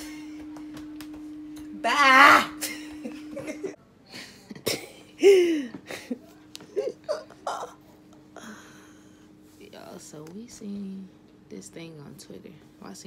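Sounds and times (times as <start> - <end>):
faint steady hum: 0.0 - 13.0
woman shouting: 1.7 - 2.7.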